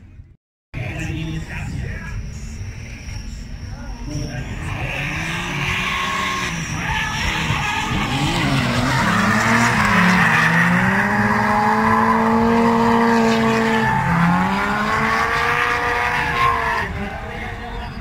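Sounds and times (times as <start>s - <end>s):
tyres squealing: 3.6s - 18.0s
car engines at high revs: 4.4s - 17.8s.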